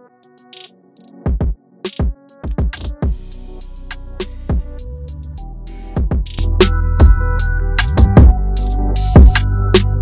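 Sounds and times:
deep kick drums: 6.0s - 6.4s, 7.0s - 8.4s.

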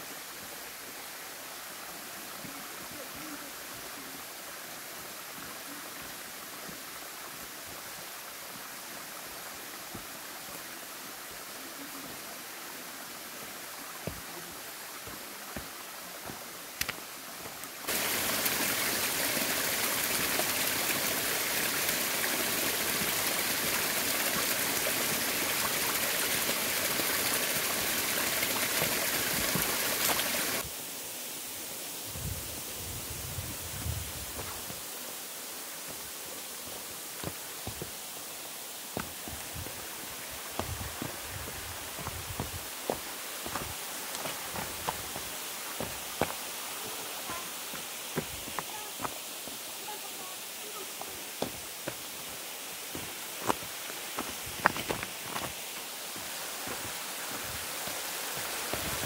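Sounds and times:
stream rushing over rocks: 0.0s - 59.0s
boots clicking on rock: 14.0s - 14.3s, 36.7s - 38.0s, 38.9s - 39.8s, 40.5s - 46.4s, 51.4s - 52.1s, 52.9s - 57.0s.

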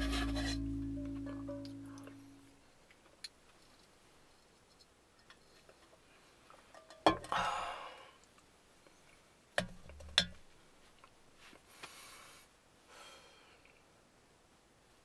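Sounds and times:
soft rustle: 2.0s - 6.8s, 10.5s - 12.9s
breathy sigh: 7.3s - 8.2s.

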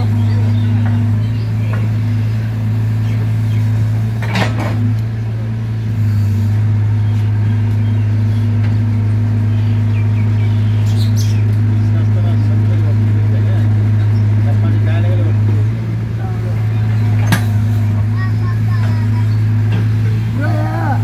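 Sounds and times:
excavator diesel engine under load: 0.0s - 21.0s.

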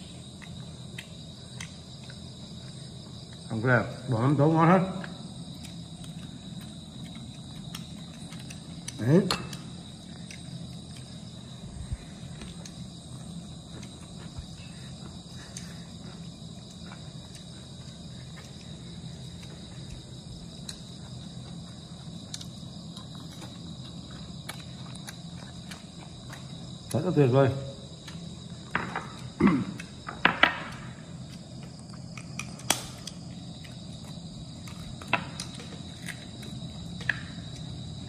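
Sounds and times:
man chewing: 0.0s - 3.5s, 5.4s - 9.0s, 9.8s - 26.9s
crickets chirring: 0.0s - 38.0s.

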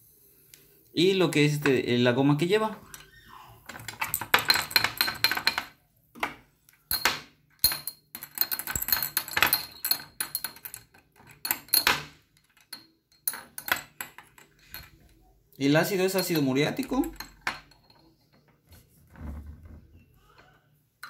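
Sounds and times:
small metal parts rattling in glass jar: 3.0s - 5.7s, 6.9s - 15.1s, 15.8s - 18.3s.

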